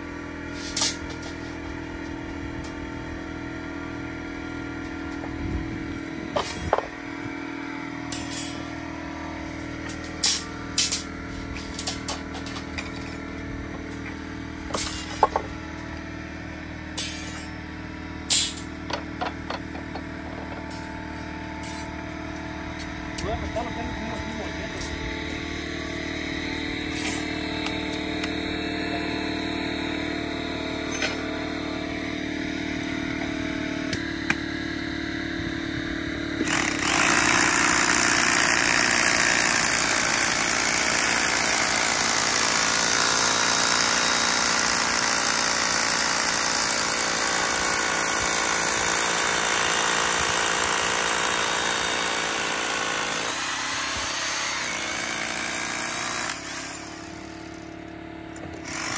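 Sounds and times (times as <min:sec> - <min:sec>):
motor hum: 0:00.0 - 0:58.9
hammer drill boring into concrete: 0:36.4 - 0:57.8, 0:58.4 - 0:58.9.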